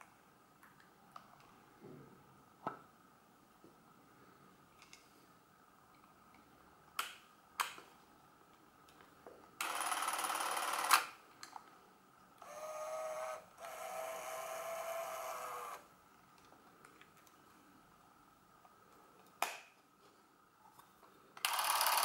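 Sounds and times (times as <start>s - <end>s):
camera motor humming: 12.4s - 15.8s.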